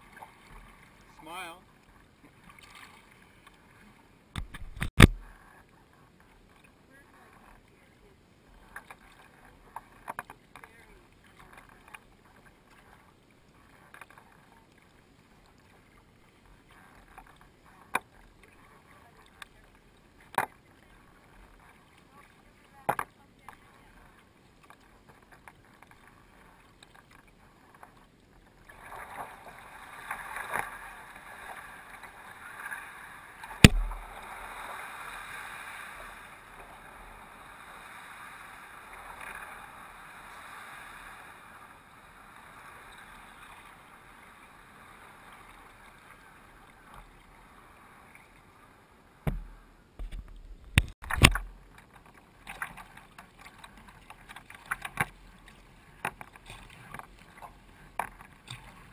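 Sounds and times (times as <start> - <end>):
water swishing along kayak hull: 0.0 - 58.9
knocks and bumps on kayak: 33.6 - 34.2, 49.3 - 51.6.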